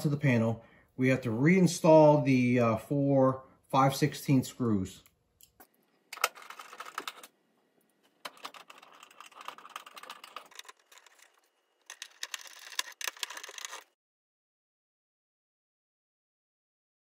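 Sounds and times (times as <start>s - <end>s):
nut driver clicking and scraping: 8.2s - 13.9s.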